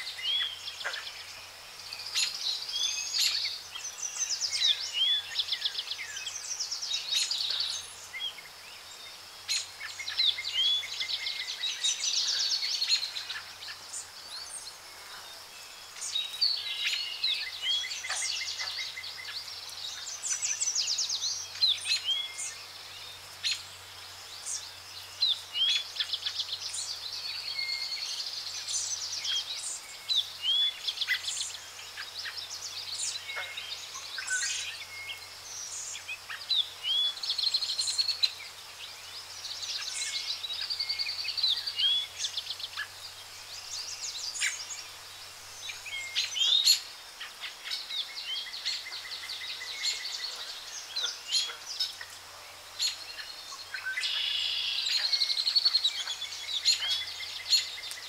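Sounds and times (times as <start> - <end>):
faint steady hiss: 0.0 - 58.0
birds chirping and calling: 15.9 - 23.7, 39.2 - 58.0.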